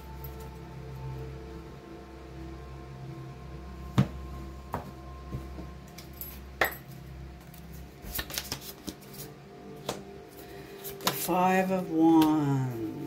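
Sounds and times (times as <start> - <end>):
faint background music: 0.0 - 13.0
cards clicking and tapping: 7.5 - 10.0, 10.8 - 11.3.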